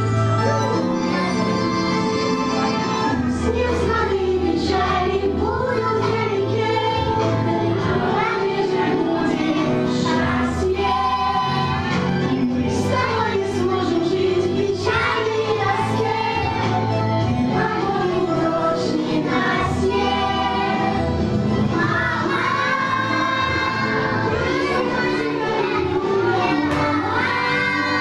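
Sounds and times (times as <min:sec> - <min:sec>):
children singing together: 0:03.0 - 0:28.0.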